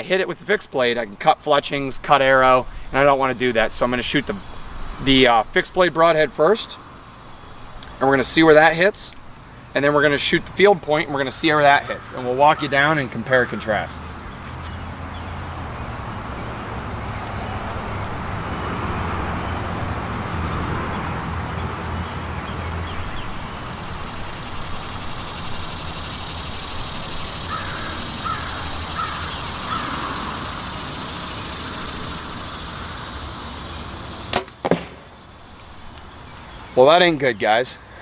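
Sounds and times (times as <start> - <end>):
distant traffic rumble: 0.0 - 38.0
high insect buzz: 0.7 - 36.8
short bird calls: 27.0 - 33.9
bow release snap: 34.3 - 35.0.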